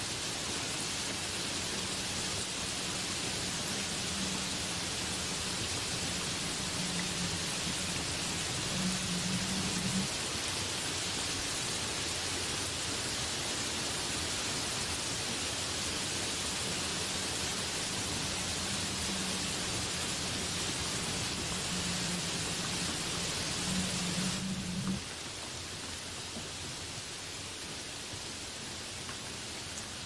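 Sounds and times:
heavy rain on leaves: 0.0 - 30.0.

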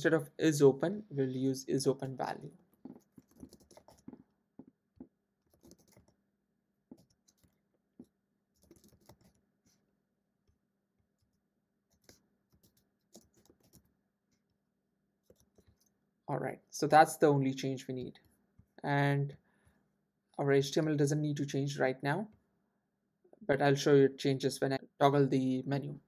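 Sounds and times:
faint keyboard typing: 2.7 - 6.2, 6.9 - 9.4, 11.2 - 14.4, 15.2 - 16.0.

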